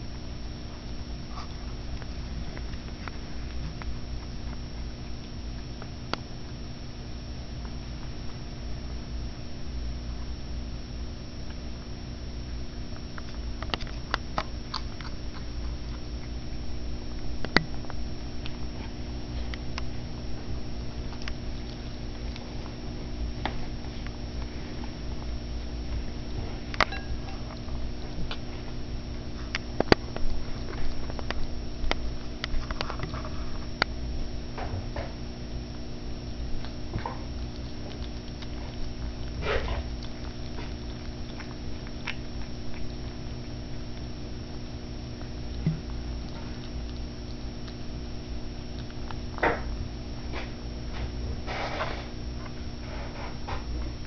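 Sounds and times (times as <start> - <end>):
kitten chewing clicks: 11.4 - 54.0.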